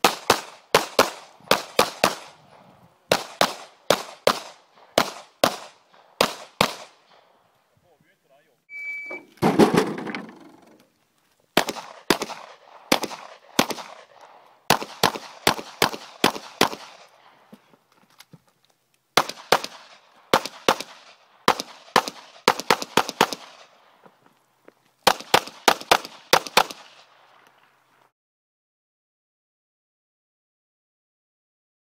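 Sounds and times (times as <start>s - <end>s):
pistol shots with echo: 0.0s - 7.3s, 11.6s - 17.3s, 19.2s - 23.9s, 25.1s - 27.2s.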